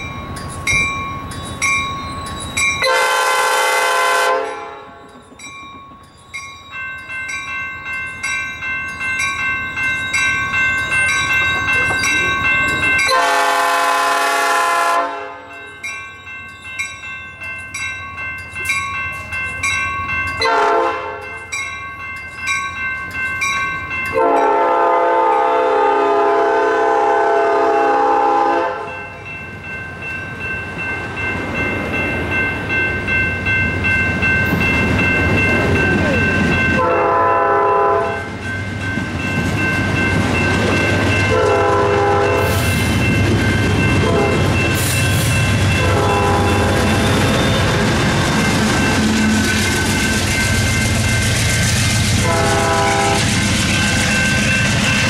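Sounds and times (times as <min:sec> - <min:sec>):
bell ringing steadily: 0:00.0 - 0:03.6, 0:04.3 - 0:14.5, 0:15.2 - 0:25.6, 0:28.7 - 0:55.0
train cars rumbling and clacking: 0:00.0 - 0:55.0
train horn blasts: 0:02.8 - 0:05.0, 0:13.1 - 0:15.5, 0:20.4 - 0:21.2, 0:24.1 - 0:28.9, 0:36.8 - 0:38.2, 0:41.3 - 0:42.7, 0:44.0 - 0:44.5, 0:45.8 - 0:48.0, 0:52.2 - 0:53.3.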